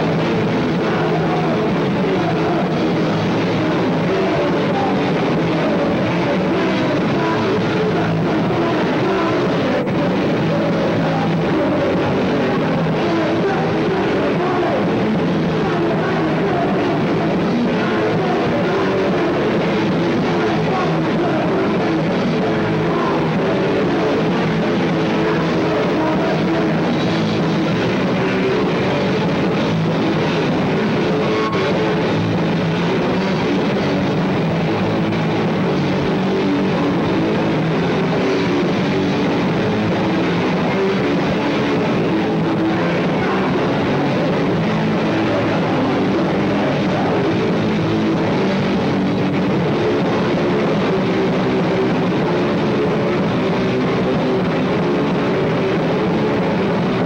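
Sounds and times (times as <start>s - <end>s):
punk rock band playing: 0.0s - 57.0s.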